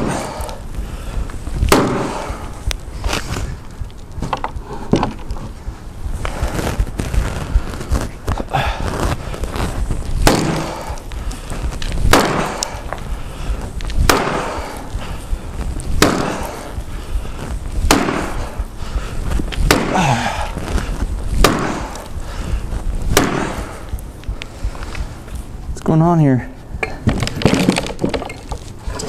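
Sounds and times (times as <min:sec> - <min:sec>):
axe chopping wood: 0:00.0 - 0:00.3, 0:01.7 - 0:02.4, 0:10.2 - 0:10.9, 0:12.1 - 0:12.9, 0:14.0 - 0:14.8, 0:16.0 - 0:16.7, 0:17.8 - 0:18.4, 0:19.6 - 0:20.4, 0:21.4 - 0:22.0, 0:23.1 - 0:23.7.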